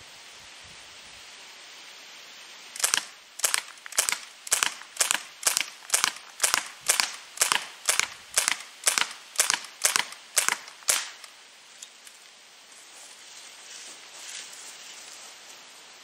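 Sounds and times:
air rifle firing sharp pops: 2.8s - 11.3s.

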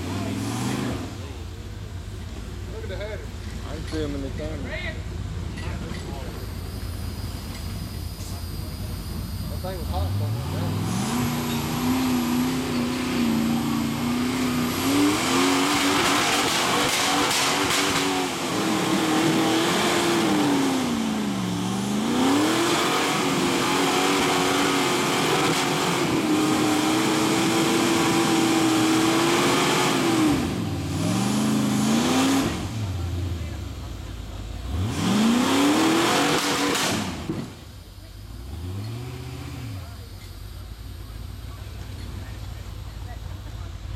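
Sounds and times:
engine revving hard: 0.0s - 1.4s, 8.5s - 33.9s, 34.5s - 40.2s.

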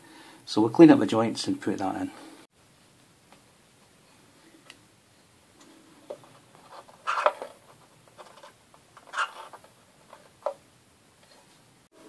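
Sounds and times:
clicks and scratchy scrapes: 5.6s - 10.6s.

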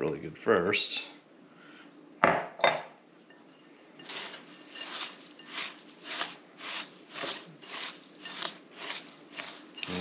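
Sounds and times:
spatula scraping in glass bowl: 3.5s - 10.0s.

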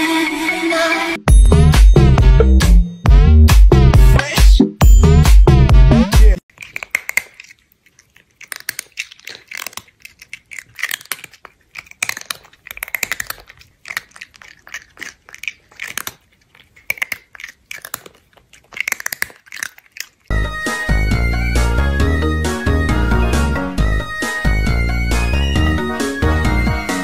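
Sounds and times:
music: 0.0s - 6.4s, 20.3s - 27.0s
person chewing and crunching: 6.4s - 23.4s.

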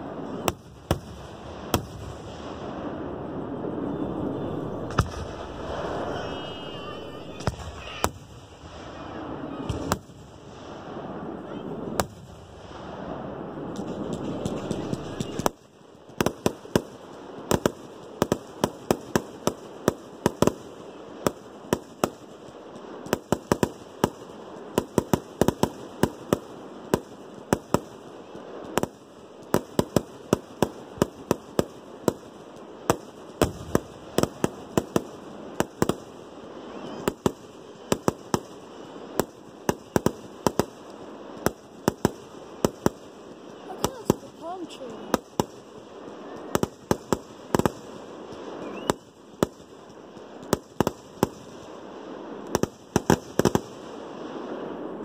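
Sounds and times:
firework cracks and pops: 0.0s - 2.9s, 4.8s - 55.0s
rumbling rush of fireworks: 0.0s - 55.0s.

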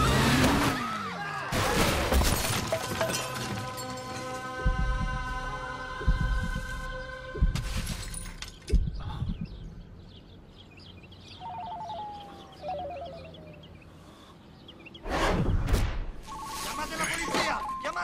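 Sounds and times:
crash of something breaking: 1.5s - 4.0s
deep thumps: 4.6s - 10.1s
faint high chirping: 8.8s - 15.0s.

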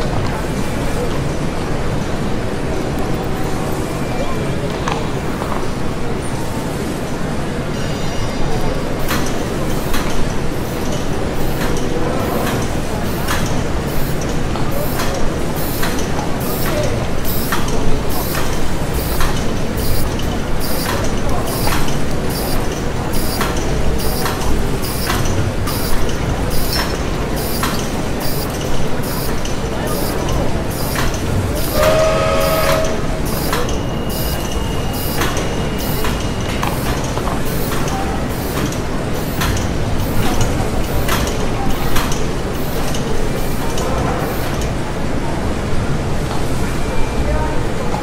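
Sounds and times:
machinery clanking: 9.0s - 44.8s.

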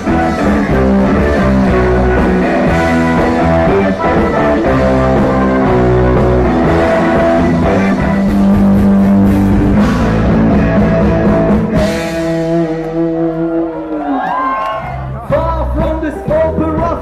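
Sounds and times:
bass guitar: 0.0s - 17.0s
drum kit playing: 0.0s - 17.0s
electric guitar: 0.0s - 17.0s.

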